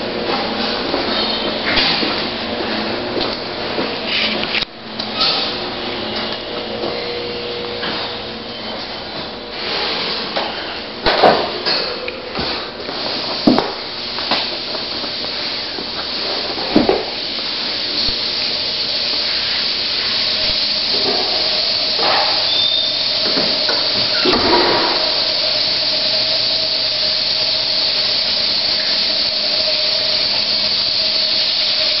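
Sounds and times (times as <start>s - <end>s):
hissing air noise: 12.3s - 32.0s.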